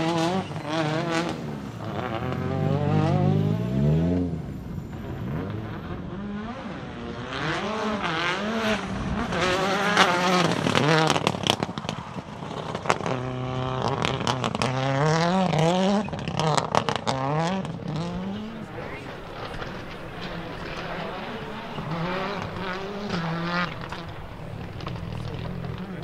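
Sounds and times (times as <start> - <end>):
rally car engine accelerating: 0.0 - 26.0
exhaust cracks and pops: 9.2 - 26.0.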